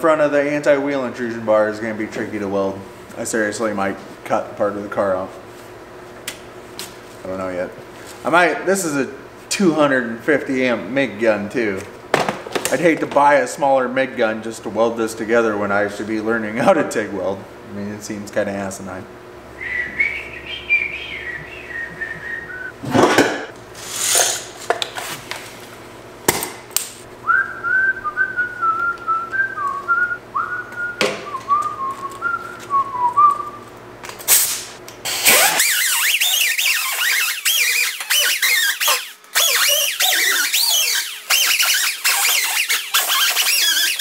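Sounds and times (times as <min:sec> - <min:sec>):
man whistling a tune: 0:19.6 - 0:22.8, 0:27.2 - 0:33.6
welding arc crackling: 0:34.3 - 0:44.0.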